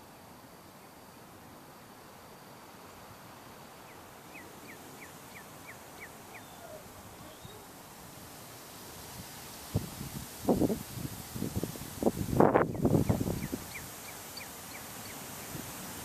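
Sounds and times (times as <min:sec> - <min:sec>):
light wind hiss: 0:00.0 - 0:16.0
bird chirping: 0:03.9 - 0:07.7, 0:12.6 - 0:15.2.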